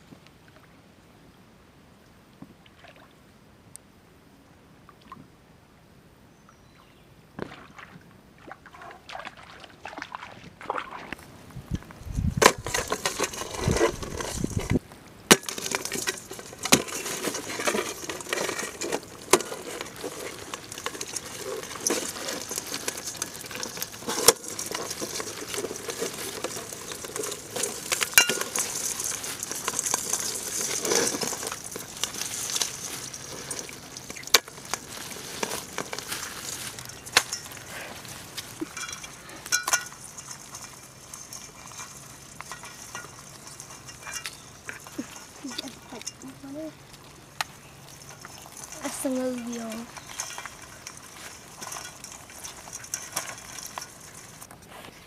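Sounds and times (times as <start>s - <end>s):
water sloshing: 7.4s - 11.9s, 15.4s - 54.5s
crabs clicking and scraping on metal: 11.7s - 54.8s.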